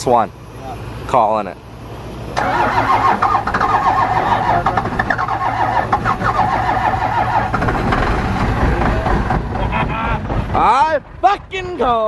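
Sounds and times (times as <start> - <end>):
diesel engine cranking and starting: 1.7 - 12.0.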